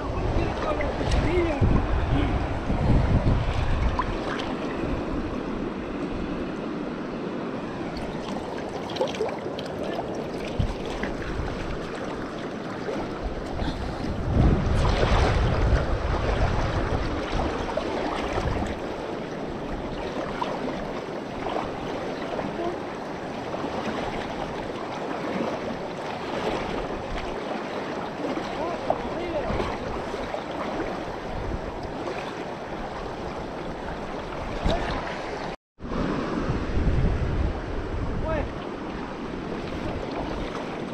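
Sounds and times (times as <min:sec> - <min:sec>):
stream running over stones: 0:07.9 - 0:14.0.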